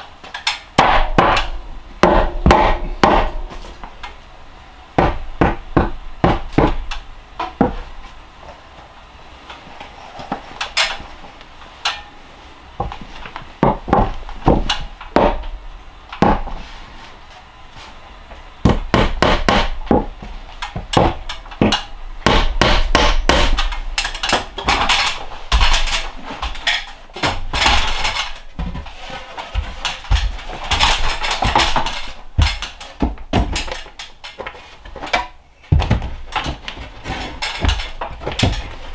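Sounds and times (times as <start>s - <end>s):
hammer striking nails into wood: 0.8s - 3.6s, 5.0s - 7.0s, 13.6s - 15.5s, 18.7s - 20.1s, 20.8s - 25.8s.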